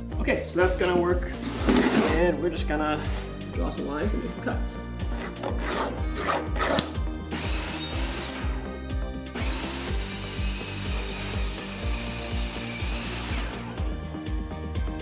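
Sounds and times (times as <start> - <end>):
background music with steady beat: 0.0 - 15.0
table saw cutting wood: 1.3 - 2.2, 5.1 - 13.8.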